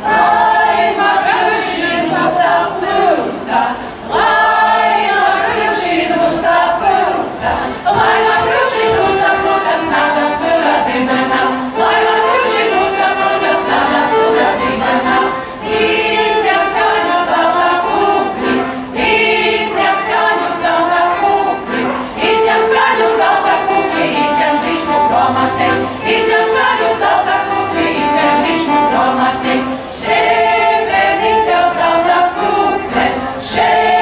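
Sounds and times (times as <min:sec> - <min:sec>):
violin playing: 0:00.0 - 0:34.0
women singing together: 0:00.0 - 0:34.0.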